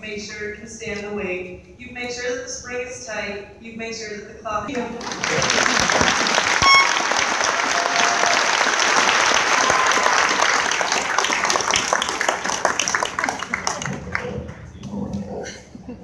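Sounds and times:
audience applauding: 5.0 - 14.6
high pitched call: 6.6 - 7.2.

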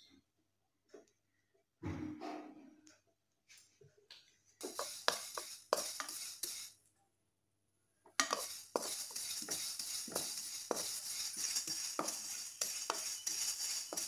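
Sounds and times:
spatula scraping metal pan: 4.6 - 6.7, 8.2 - 14.0
seeds rustling in pan: 4.6 - 6.8, 8.2 - 14.0.

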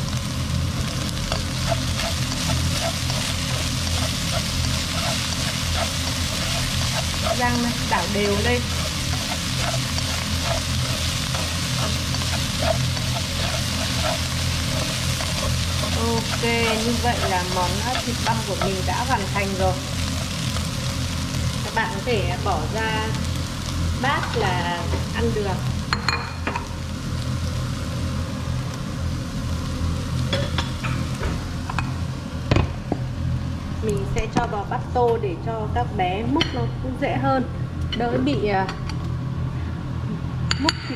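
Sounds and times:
meat sizzling in a wok: 0.0 - 34.7
steady low hum: 0.0 - 40.9
wooden spatula stirring: 1.2 - 20.4.

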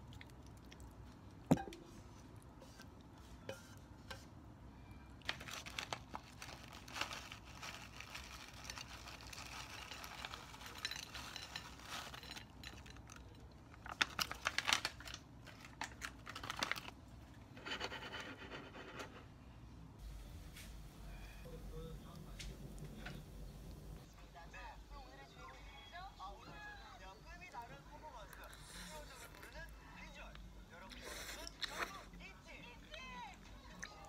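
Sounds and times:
plastic package crinkling: 5.2 - 13.0, 13.7 - 17.0.

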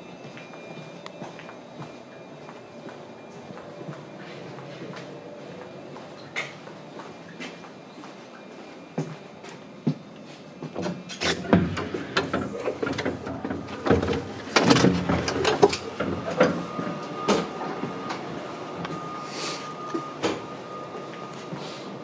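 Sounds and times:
footsteps: 0.2 - 10.7
knocks and clatters: 10.8 - 16.7.

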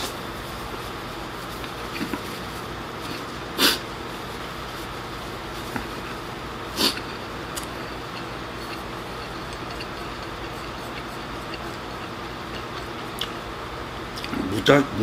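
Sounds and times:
steady room hum: 0.0 - 15.0
chewing: 6.8 - 13.5, 14.1 - 14.4.

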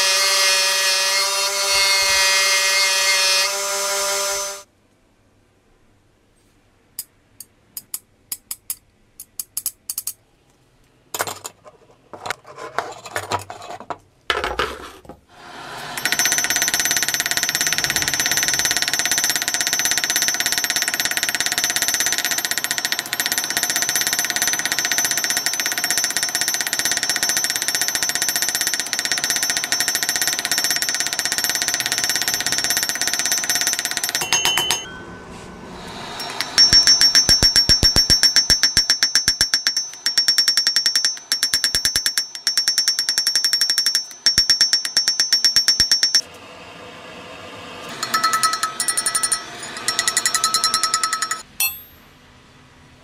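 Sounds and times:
loud high-pitched machine noise: 0.0 - 4.7, 15.4 - 40.6, 45.8 - 51.4.

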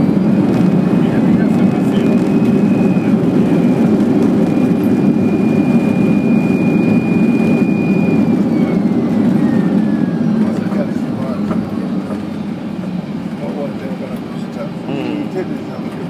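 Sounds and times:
high engine whine: 0.0 - 16.0
jet engine and wheels rumbling: 0.0 - 16.0.

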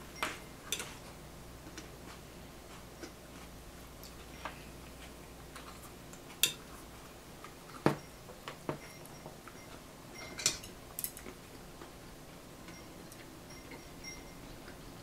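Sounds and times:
chopsticks clinking on bowls: 6.4 - 6.7, 10.2 - 11.4.

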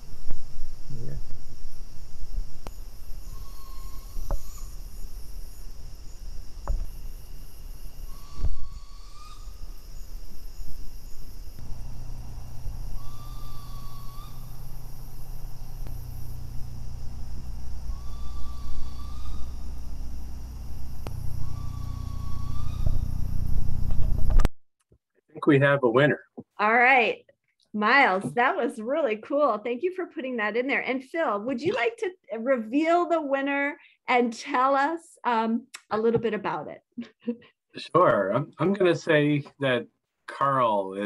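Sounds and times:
insect trilling: 0.0 - 24.4
owl whistled shriek: 3.2 - 5.0, 8.0 - 11.2, 12.9 - 14.7, 17.9 - 19.8, 21.1 - 23.3.

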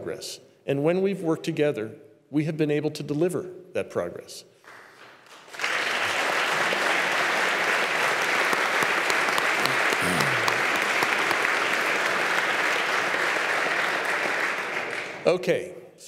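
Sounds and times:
audience applauding: 5.3 - 15.2.

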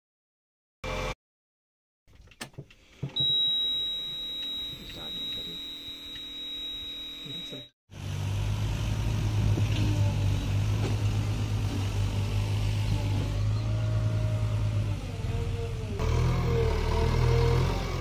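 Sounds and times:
high-pitched dashboard beep: 3.2 - 7.7
diesel engine running: 7.9 - 18.0.

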